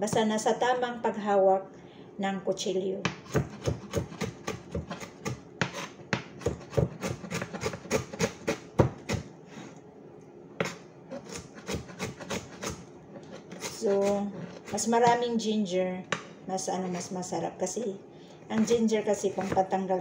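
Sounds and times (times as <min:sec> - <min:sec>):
knife chopping on cutting board: 0:03.0 - 0:09.3, 0:10.6 - 0:15.2, 0:18.5 - 0:19.7.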